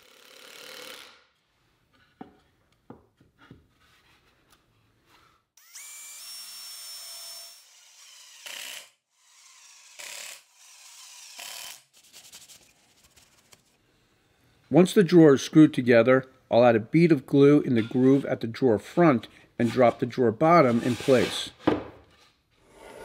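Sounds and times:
drill clutch rapid ticking: 0.0 - 1.1
drill boring into wood: 0.0 - 1.2, 5.6 - 11.9
drill driving screws: 0.0 - 1.2, 5.6 - 11.9.

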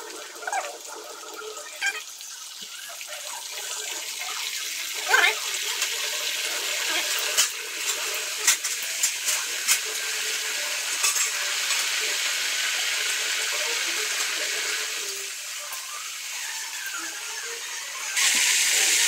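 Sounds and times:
banana slices sizzling in oil: 0.0 - 19.0.

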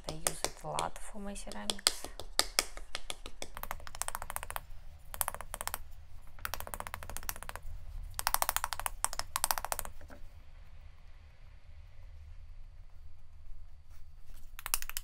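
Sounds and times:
wooden spoon patting clay: 0.0 - 10.3, 14.3 - 15.0.

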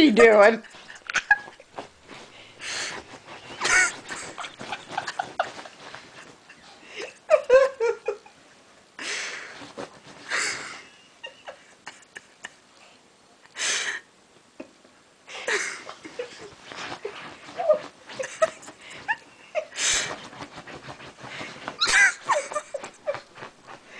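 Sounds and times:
fabric rustling: 0.0 - 8.2, 9.4 - 10.9, 15.9 - 23.9
dog pawing scratches: 0.6 - 6.5, 16.3 - 23.9.

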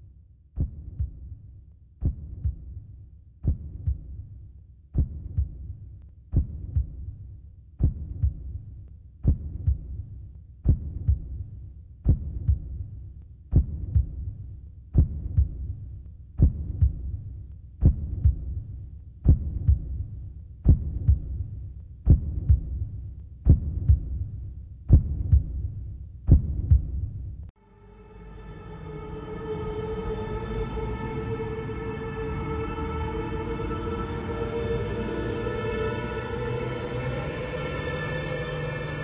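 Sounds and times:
deep heartbeat-like thumps: 0.6 - 27.5.

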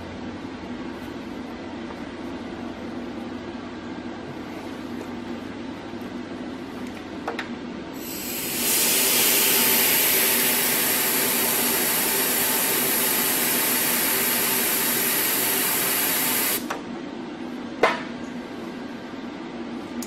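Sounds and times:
compressed air gun hissing: 8.0 - 16.7.

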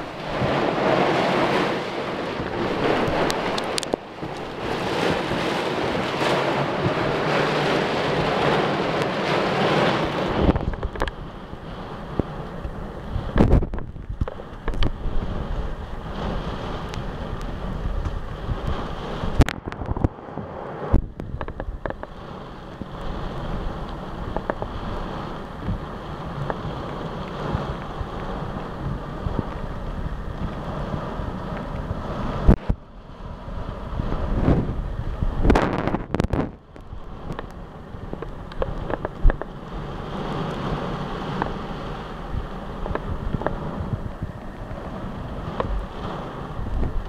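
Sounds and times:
heavy rain: 0.0 - 47.0
wind gusts buffeting microphone: 0.0 - 47.0.

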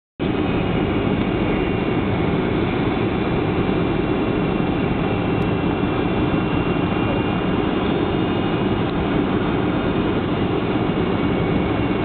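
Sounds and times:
faint high whine: 0.2 - 12.0
jet engines: 0.2 - 12.0.

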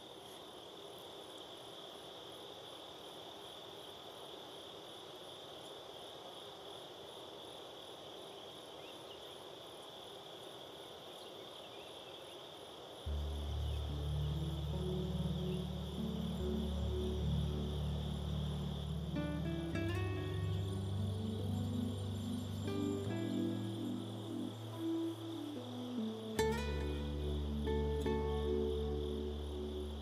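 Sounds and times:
insects trilling: 0.0 - 30.0
music with deep bass: 13.1 - 25.6
pulsing chirp: 13.1 - 30.0.

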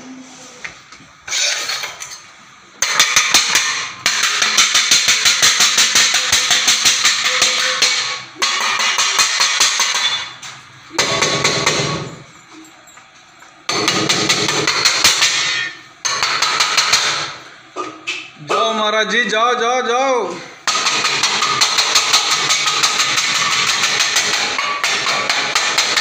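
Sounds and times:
rapid banging on hard object: 2.8 - 10.4, 13.7 - 17.4, 20.6 - 26.0.

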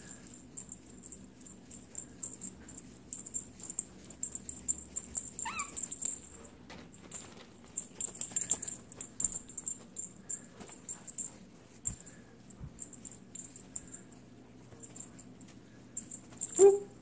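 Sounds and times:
soft rustling and clicks: 0.6 - 13.8
cat chirp: 5.4 - 5.8.

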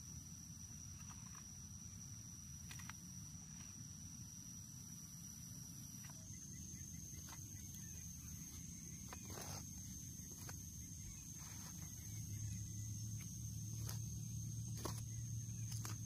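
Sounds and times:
hoe striking soil: 8.9 - 12.2, 13.2 - 16.0.

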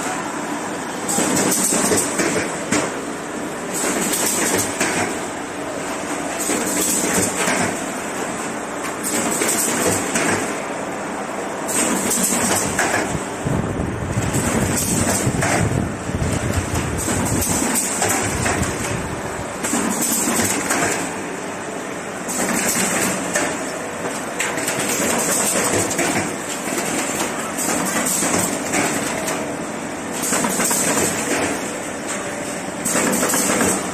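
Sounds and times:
machine clattering: 1.1 - 3.0, 3.7 - 5.2, 6.4 - 7.8, 11.7 - 13.2, 14.1 - 19.0, 19.6 - 21.1, 22.3 - 29.4, 30.1 - 31.7, 32.8 - 33.9.

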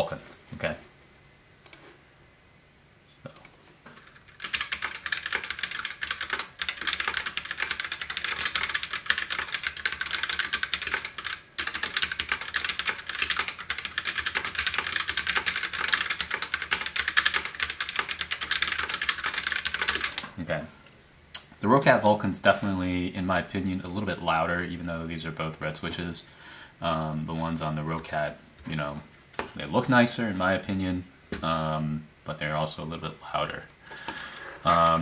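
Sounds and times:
mechanical keyboard typing: 3.4 - 20.3.

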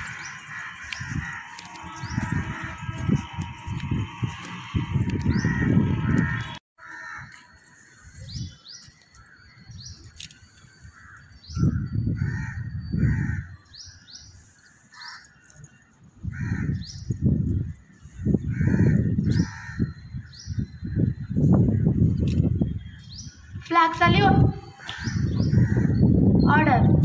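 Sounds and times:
small birds chirping: 0.0 - 3.8, 12.8 - 27.0
crows cawing: 0.0 - 3.9, 4.8 - 8.0, 10.8 - 11.3, 12.2 - 13.6, 14.9 - 15.3, 16.3 - 16.9, 18.4 - 19.9, 24.8 - 26.0
low rumble on microphone: 0.0 - 6.6.

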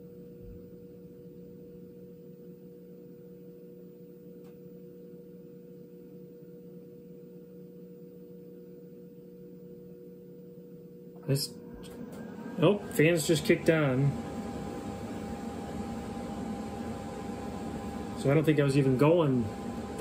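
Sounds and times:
inverter humming: 0.0 - 20.0.

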